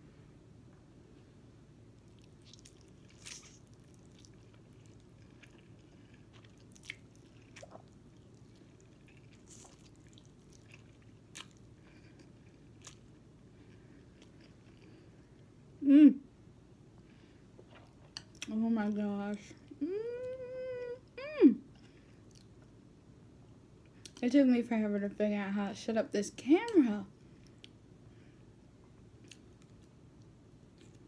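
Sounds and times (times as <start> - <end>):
chewing and slurping noodles: 2.2 - 14.9.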